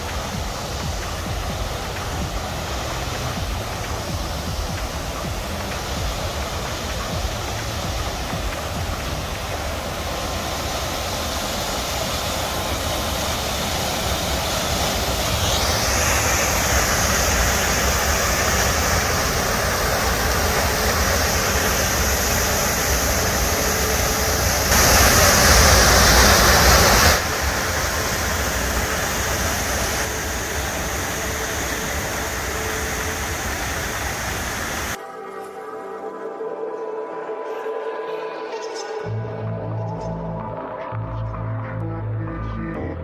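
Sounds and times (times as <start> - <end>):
waterfall rushing: 0.0 - 35.0.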